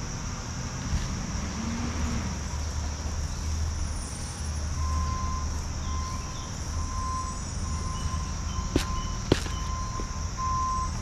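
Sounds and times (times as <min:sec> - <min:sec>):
insects buzzing chorus: 0:00.0 - 0:11.0.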